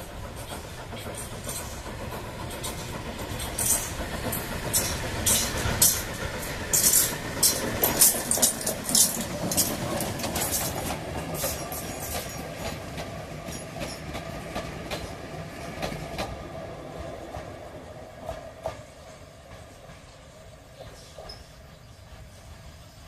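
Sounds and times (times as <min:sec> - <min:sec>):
wheels clicking over rail joints: 0:00.0 - 0:16.5
steam locomotive exhaust beats: 0:00.0 - 0:23.0.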